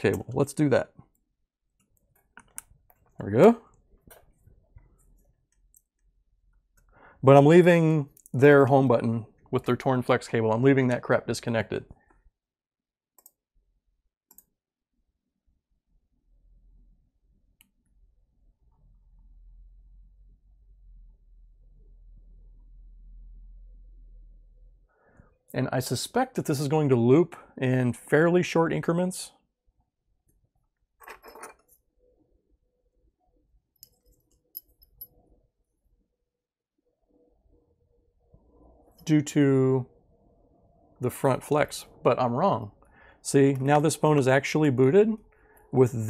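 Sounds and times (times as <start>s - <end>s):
faint steady hum: 16.4s - 25.3s
small sharp clicks and clinks: 33.8s - 35.2s.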